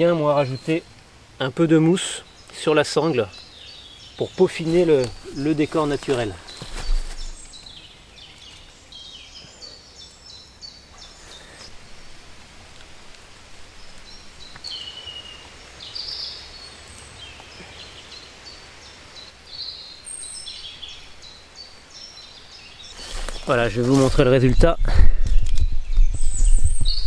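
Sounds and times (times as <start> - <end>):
low background noise: 0.0 - 26.8
small birds singing: 0.0 - 27.0
faint rustling: 4.2 - 8.7, 22.8 - 25.6.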